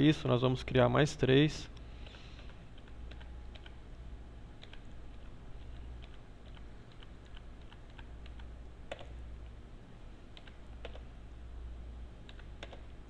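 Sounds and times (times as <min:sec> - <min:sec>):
keyboard typing: 0:02.0 - 0:03.8, 0:04.6 - 0:09.2, 0:10.3 - 0:11.1, 0:12.2 - 0:12.9.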